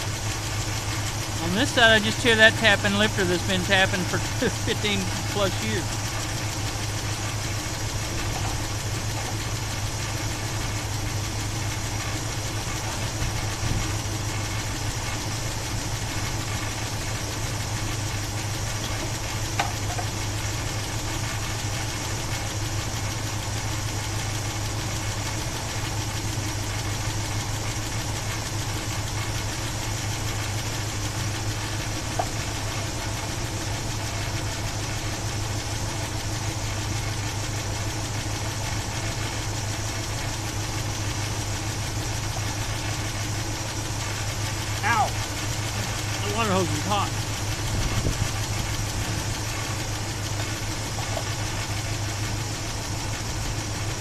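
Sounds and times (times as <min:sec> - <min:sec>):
car engine idling: 0:00.0 - 0:54.0
engine top end rattle: 0:16.4 - 0:20.5.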